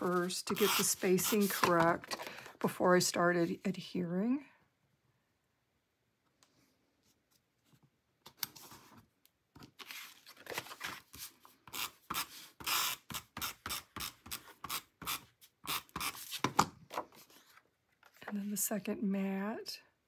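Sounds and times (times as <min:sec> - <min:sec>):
paper handling: 0:09.6 - 0:11.5.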